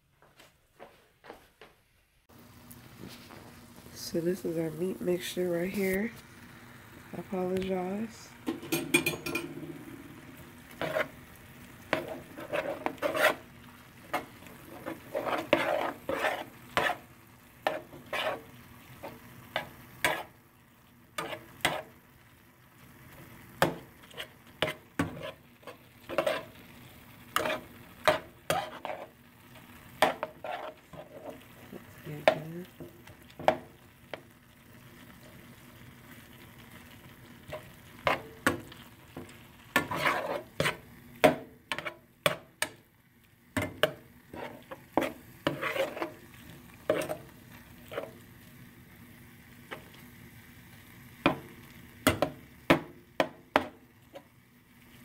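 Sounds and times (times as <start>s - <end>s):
meat sizzling: 2.3s - 55.0s
metal spoon scraping frying pan: 8.5s - 9.8s, 10.7s - 11.2s, 11.8s - 20.4s, 21.2s - 22.0s, 23.6s - 26.7s, 27.3s - 31.6s, 37.4s - 38.6s, 39.2s - 42.5s, 43.6s - 48.2s.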